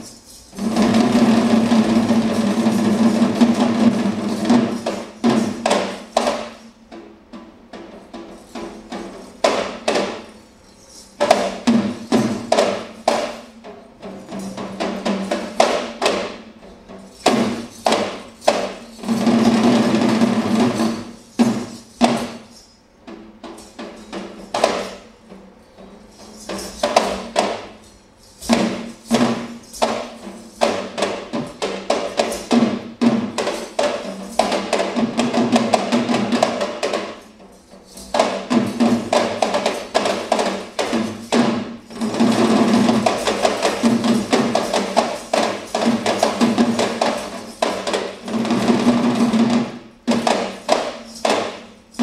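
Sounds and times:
hand drums playing rhythmic strokes: 0.0 - 10.3, 28.5 - 52.0.

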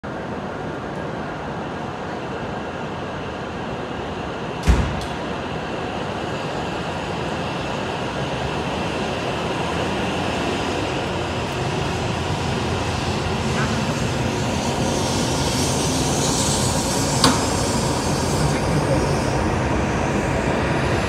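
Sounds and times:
train rushing rumble: 0.1 - 21.0
train motor whine: 12.5 - 19.4.

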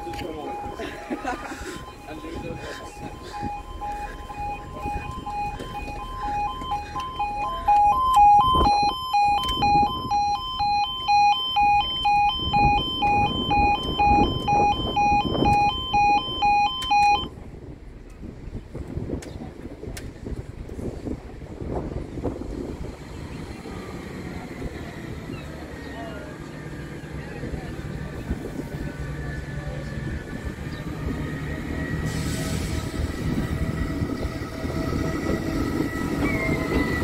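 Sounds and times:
level crossing alarm: 0.0 - 17.3, 34.0 - 37.0
road traffic rumble: 0.0 - 37.0.

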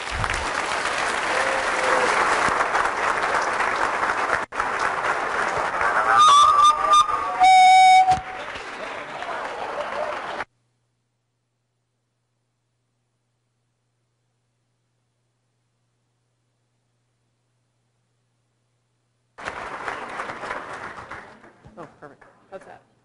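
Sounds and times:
audience applauding: 0.0 - 10.5, 19.4 - 22.4
loud held horn tone: 6.1 - 8.4.

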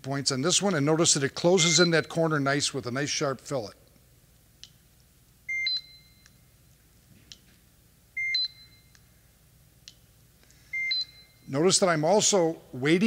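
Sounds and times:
short steady beep: 5.5 - 6.4, 8.2 - 9.0, 10.6 - 11.6.

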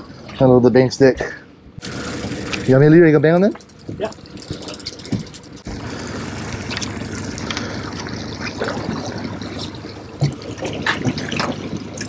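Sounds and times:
fishing gear clicking: 3.6 - 5.7
water rushing past boat hull: 3.7 - 12.0.

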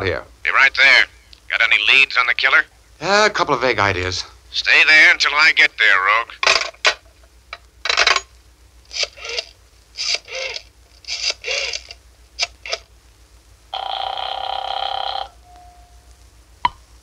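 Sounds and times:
rotary dial whirring: 8.9 - 12.8
telephone ringing tone: 13.7 - 16.0.

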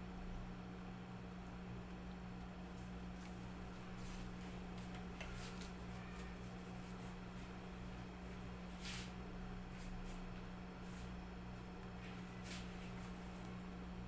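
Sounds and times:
steady low hum: 0.0 - 14.0
plastic gloves rustling: 2.7 - 10.2.

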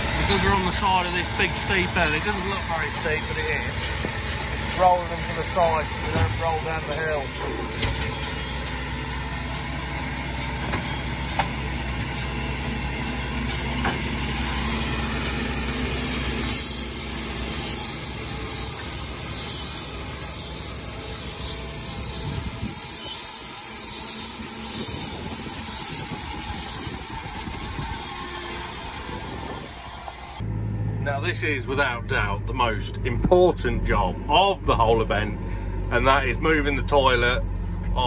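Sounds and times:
pulsing high hiss: 0.0 - 9.9, 10.9 - 30.4
baler machine hum: 0.0 - 38.0.

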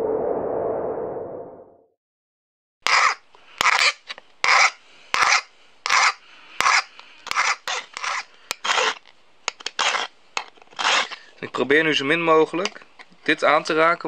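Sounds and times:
file rasping on steel: 2.8 - 9.0, 9.6 - 11.3.

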